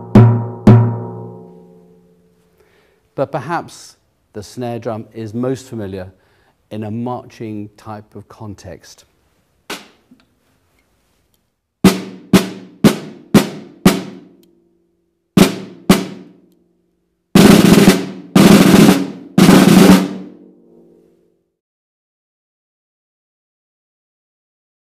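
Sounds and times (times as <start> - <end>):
snare drum strokes and rolls: 11.8 - 14.3, 15.4 - 16.4, 17.4 - 20.4.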